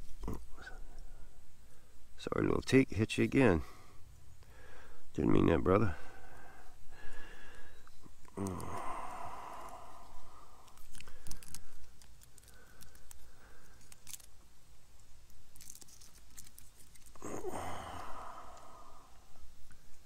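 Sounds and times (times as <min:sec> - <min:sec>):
garlic skins crackling and tearing: 0:10.5 - 0:17.7.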